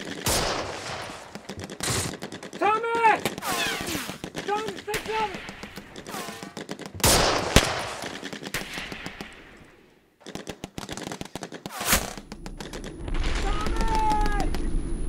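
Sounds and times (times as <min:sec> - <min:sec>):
gunshots: 0:00.0 - 0:12.3
automatic gunfire: 0:03.4 - 0:09.4.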